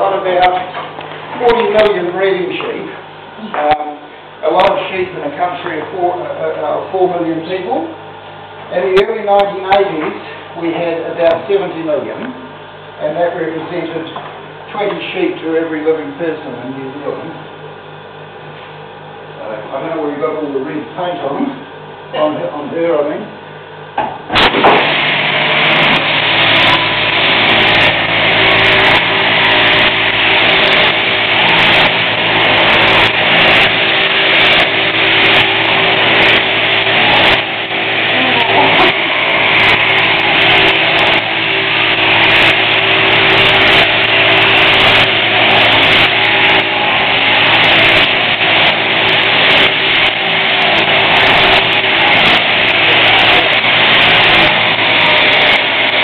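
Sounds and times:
electric sheep shears cutting fleece: 0:24.3 - 0:56.0.

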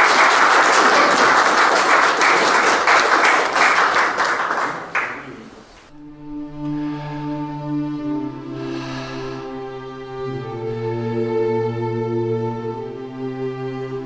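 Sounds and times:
audience applause: 0:00.0 - 0:05.5
soft music with held notes: 0:05.9 - 0:14.0.

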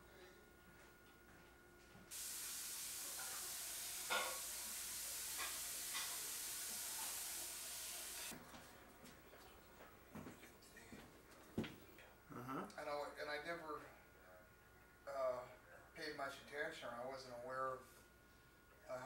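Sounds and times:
steady hiss: 0:02.1 - 0:08.3.

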